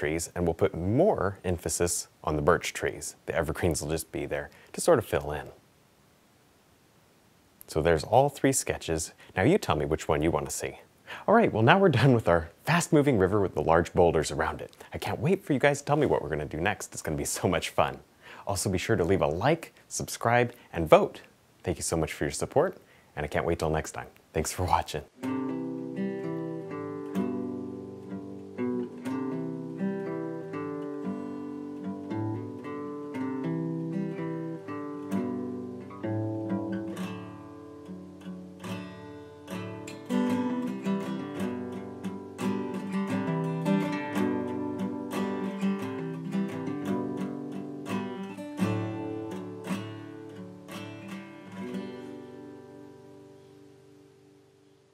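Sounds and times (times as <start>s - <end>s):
acoustic guitar strumming: 24.7s - 54.4s
plucked strings over held chords: 25.2s - 53.3s.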